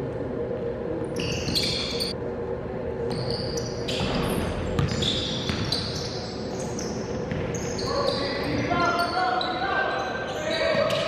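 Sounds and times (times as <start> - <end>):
sneakers squeaking on gym floor: 1.1 - 2.2, 3.1 - 11.0
basketball bouncing: 3.9 - 5.8, 7.1 - 7.6.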